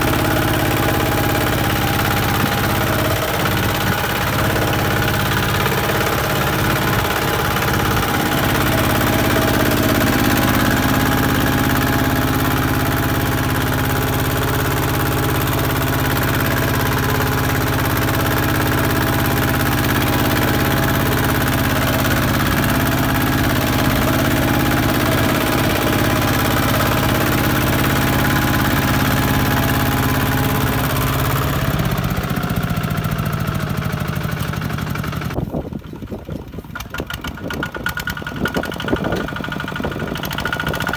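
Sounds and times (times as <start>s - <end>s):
diesel tractor engine running: 0.0s - 40.9s.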